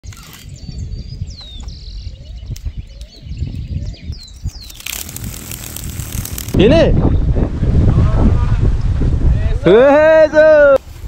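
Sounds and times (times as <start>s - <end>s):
birds chirping: 0.0s - 7.4s.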